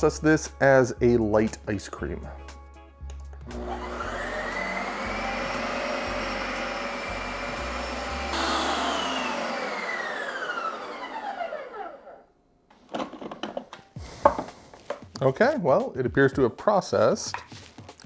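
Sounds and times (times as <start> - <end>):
ice cream maker motor whining: 3.4 - 12.3.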